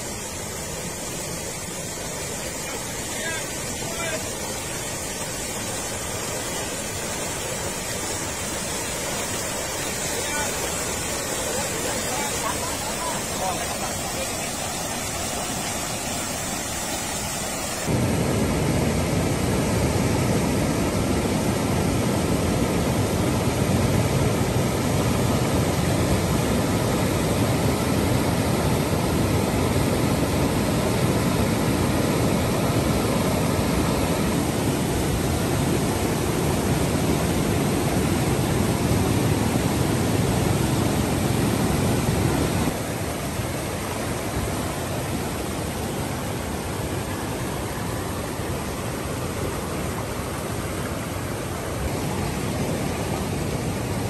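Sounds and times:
floodwater rushing: 0:00.0 - 0:54.0.

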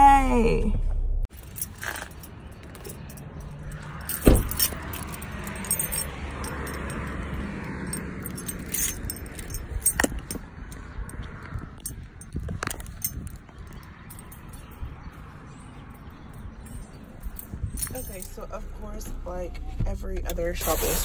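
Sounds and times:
low rumble: 0:00.0 - 0:01.3
keys jangling: 0:01.3 - 0:18.5
heavy thump: 0:04.2 - 0:04.8.

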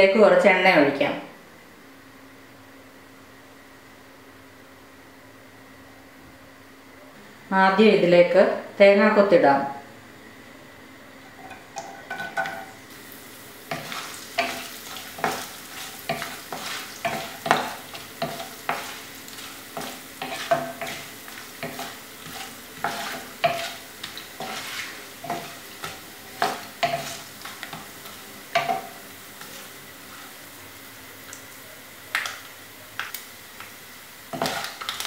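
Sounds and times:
spatula scraping and tapping pan: 0:11.3 - 0:12.8, 0:13.7 - 0:30.3, 0:34.3 - 0:35.0
oil sizzling: 0:11.3 - 0:35.0.

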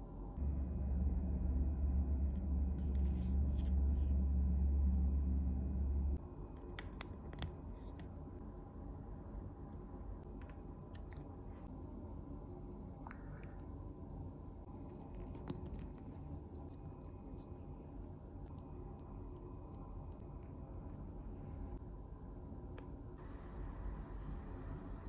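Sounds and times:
low hum: 0:00.0 - 0:25.0.

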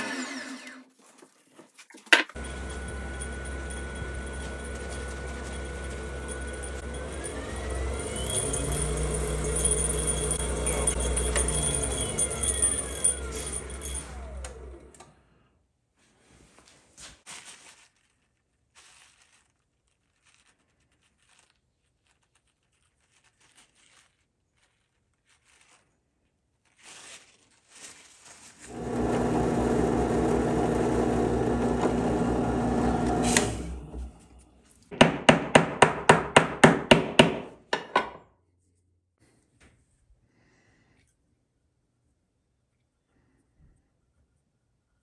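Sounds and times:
drill press motor running: 0:02.4 - 0:15.1, 0:28.7 - 0:34.2.

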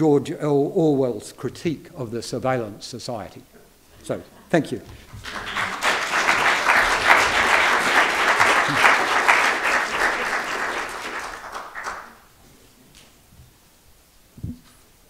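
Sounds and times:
audience applauding: 0:04.9 - 0:12.3.

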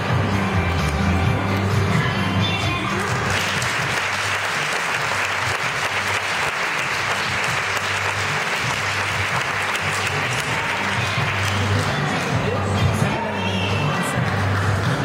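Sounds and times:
background music: 0:00.0 - 0:15.0
audience applauding: 0:03.0 - 0:12.2.

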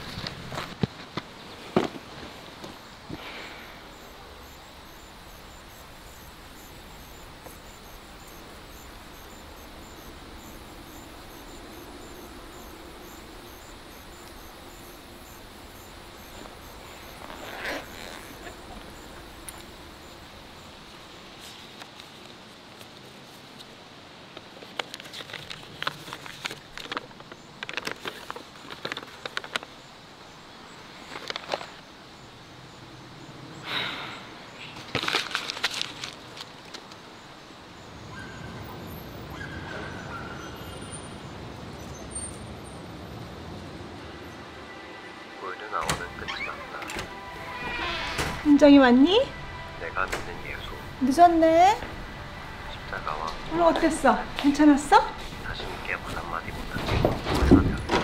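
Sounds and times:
faint background hiss: 0:00.0 - 0:39.3
insects chirping: 0:00.0 - 0:58.0
outdoor hush: 0:00.0 - 0:58.0
paper crackling and rustling: 0:24.5 - 0:29.7, 0:34.8 - 0:37.0.

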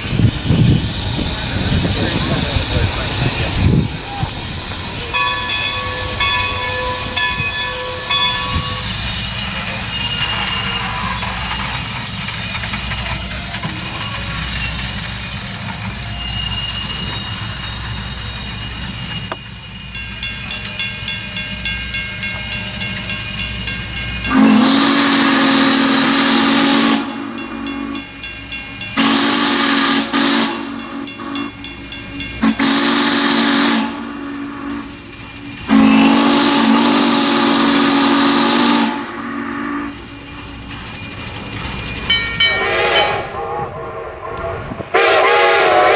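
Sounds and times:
steam hissing: 0:00.0 - 0:45.9
train running: 0:00.0 - 0:45.9
steam locomotive whistle: 0:00.2 - 0:15.0, 0:24.3 - 0:28.2, 0:29.0 - 0:31.6, 0:32.4 - 0:35.0, 0:35.6 - 0:40.0, 0:42.4 - 0:45.9.

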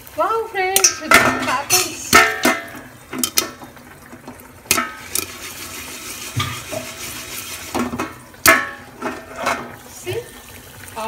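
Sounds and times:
metal pot lid clanking: 0:00.7 - 0:03.7, 0:04.7 - 0:09.8.

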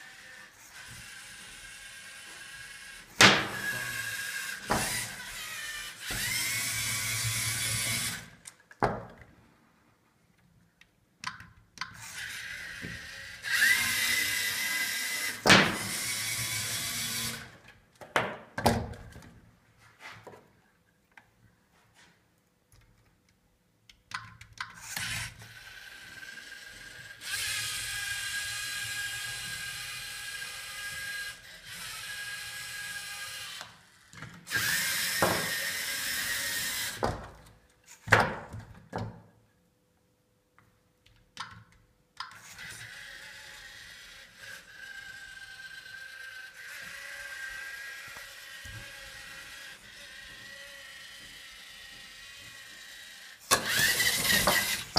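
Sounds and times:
electric motors whining: 0:00.0 - 0:08.4, 0:12.0 - 0:17.6, 0:24.8 - 0:37.1, 0:42.5 - 0:54.9.

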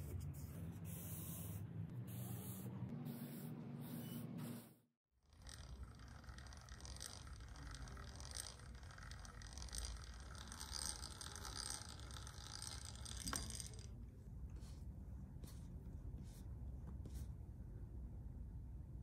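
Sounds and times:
hand rubbing and scraping a surface: 0:14.5 - 0:17.4.

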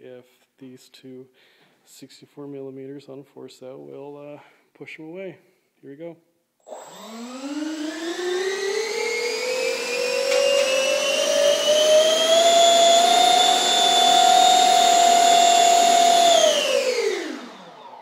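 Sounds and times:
electric ducted fans whining: 0:06.9 - 0:18.0.

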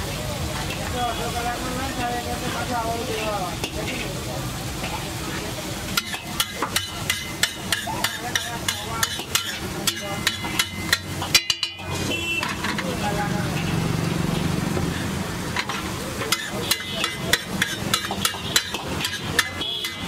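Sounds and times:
gravy sizzling on a griddle: 0:00.0 - 0:20.0
metal spatula clacking on griddle: 0:05.9 - 0:13.7, 0:15.5 - 0:20.0.

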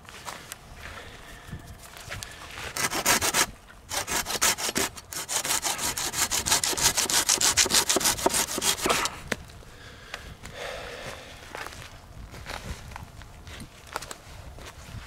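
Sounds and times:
hand saw cutting branch: 0:02.7 - 0:09.3.

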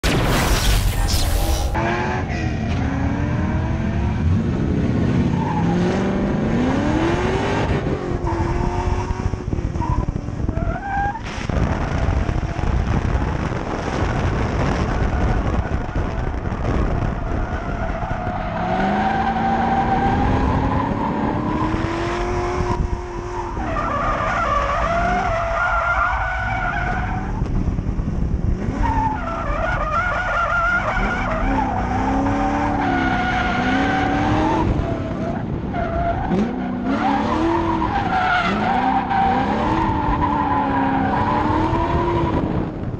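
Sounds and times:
tires squealing: 0:05.2 - 0:07.1, 0:09.8 - 0:21.9, 0:22.6 - 0:27.5, 0:28.7 - 0:42.6.

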